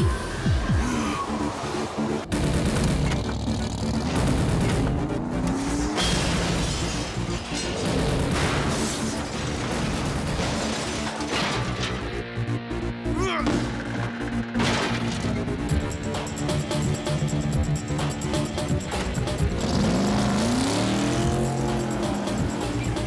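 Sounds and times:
dramatic music: 0.0 - 23.0.

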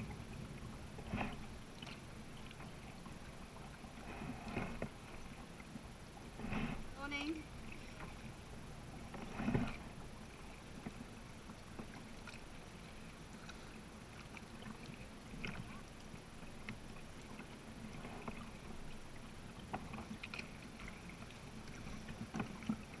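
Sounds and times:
low steady hiss: 0.0 - 23.0
paddle splashes and drips: 0.0 - 23.0
water lapping at hull: 0.0 - 23.0.

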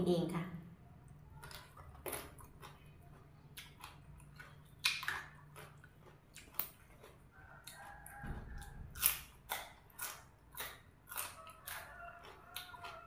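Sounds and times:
person chewing food: 1.0 - 13.0.

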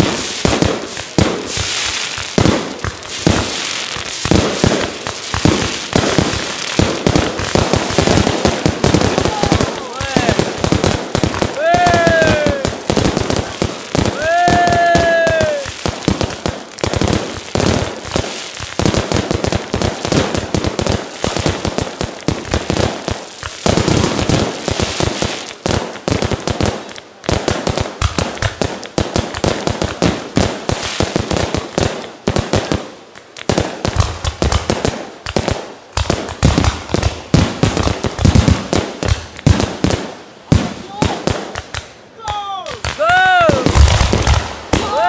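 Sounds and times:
fireworks bangs and crackles: 0.0 - 45.0.

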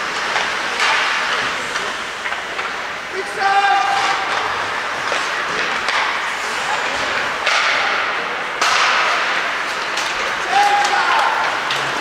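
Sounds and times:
skate blades scraping on ice: 0.0 - 7.5.

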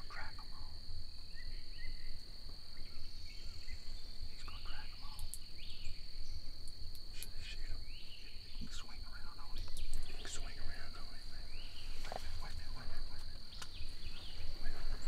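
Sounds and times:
high-pitched insect drone: 0.0 - 15.0
short bird calls: 2.8 - 6.5.

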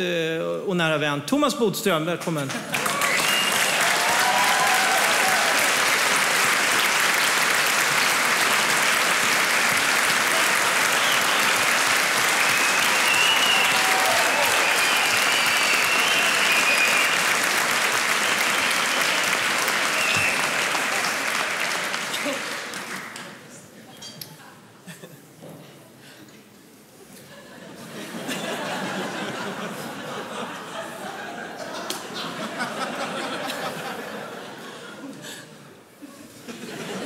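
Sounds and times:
large audience applauding: 2.3 - 23.4.

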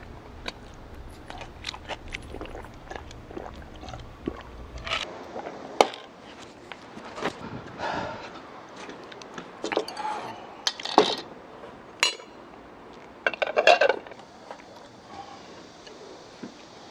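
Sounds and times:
ceramic dishes clinking: 12.0 - 12.3.

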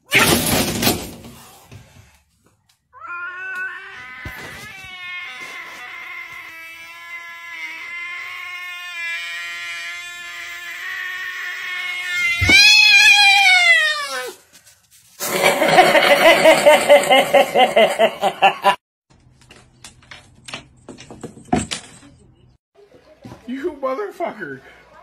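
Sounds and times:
cat yowling: 3.0 - 14.4.

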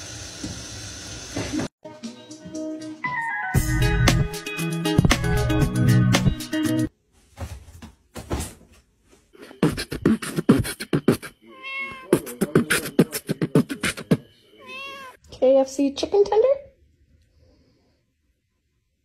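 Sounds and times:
cat spitting: 9.5 - 14.9
cat yowling: 11.5 - 12.1, 14.6 - 15.2.

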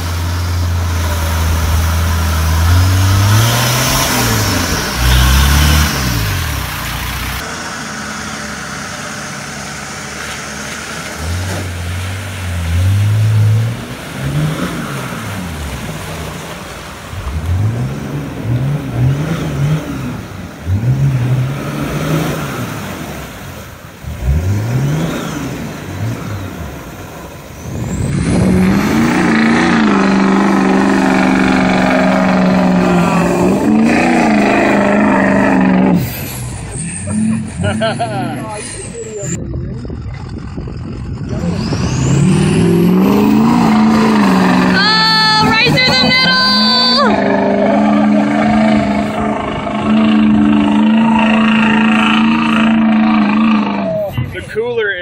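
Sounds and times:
engine revving in bursts: 0.0 - 9.8, 17.2 - 23.4, 24.0 - 26.8, 27.6 - 38.4, 41.0 - 54.1
water spraying: 0.0 - 39.2
truck engine at high revs: 0.0 - 55.0.

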